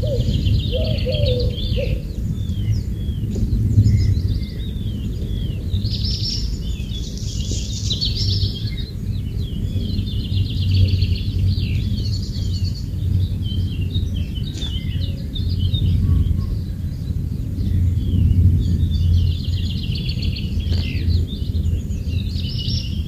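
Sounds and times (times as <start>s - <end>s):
birds chirping and trilling: 0.0s - 23.0s
low rumble: 0.0s - 23.0s.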